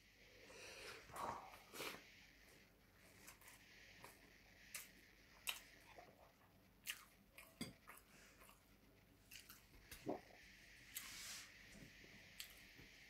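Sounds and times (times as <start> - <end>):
soft chewing: 3.0 - 11.1.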